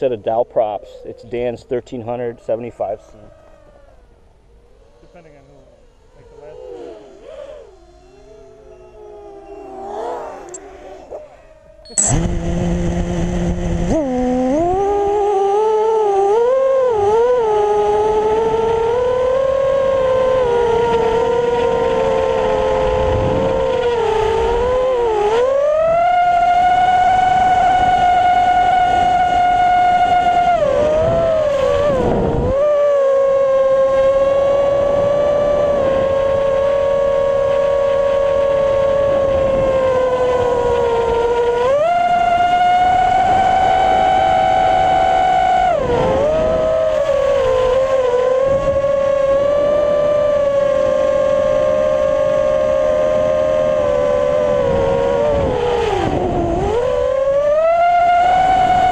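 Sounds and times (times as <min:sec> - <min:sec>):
quadcopter motors whining: 0:00.0 - 0:58.9.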